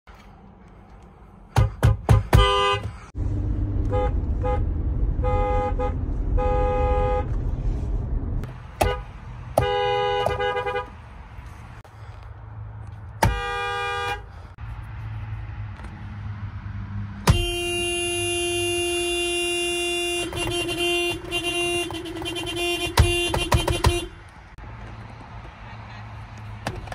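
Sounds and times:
car horns honking: 1.5 - 3.1, 3.7 - 7.5, 8.7 - 11.0, 13.2 - 14.4, 17.2 - 24.3
long steady car horn honk: 2.4 - 2.9, 5.2 - 7.3, 9.6 - 10.9, 13.2 - 14.3, 17.2 - 24.2.

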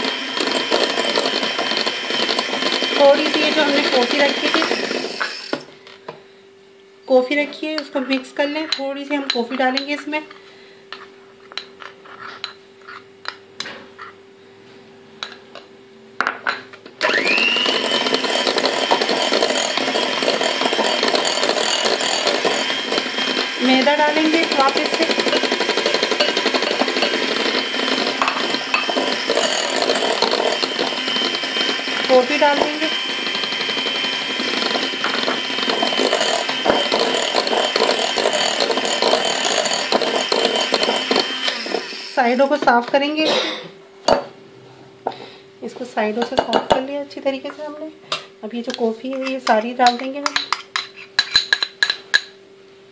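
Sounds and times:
electric hand mixer whining: 0.0 - 5.7, 17.0 - 42.7
beaters rattling against glass bowl: 23.7 - 27.4, 28.0 - 31.3, 35.0 - 41.0
spoon clinking glass bowl: 24.6 - 27.3, 49.2 - 52.3.

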